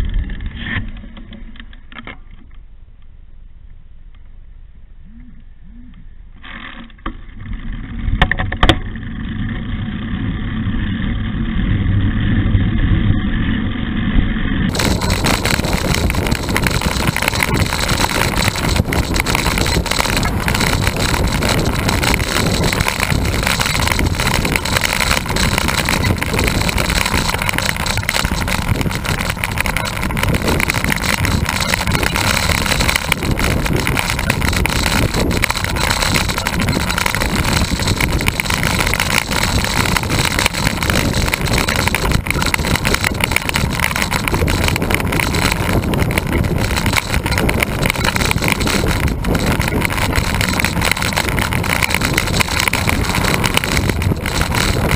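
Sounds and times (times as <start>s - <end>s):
tyre and road noise: 6.4s - 54.9s
wind rushing over microphone: 11.3s - 54.9s
sharp clicks: 14.7s - 54.9s.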